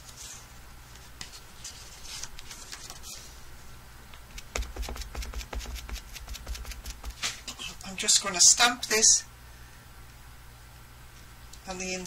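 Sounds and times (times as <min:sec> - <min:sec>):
stamp tapping on ink pad: 0:04.4 - 0:07.2.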